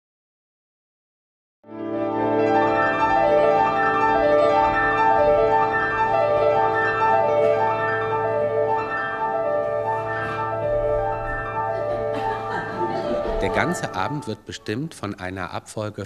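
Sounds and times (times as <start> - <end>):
solo piano rippling runs: 1.8 - 14.4.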